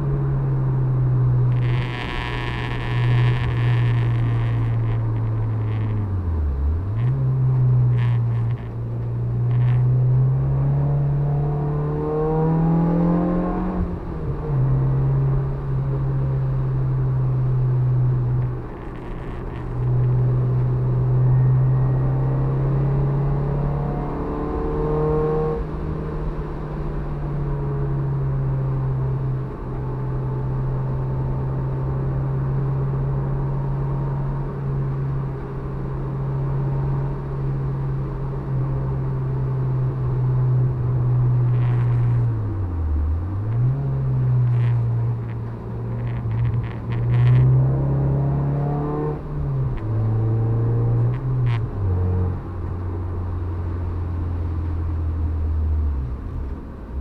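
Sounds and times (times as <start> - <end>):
car engine under load: 0.0 - 57.0.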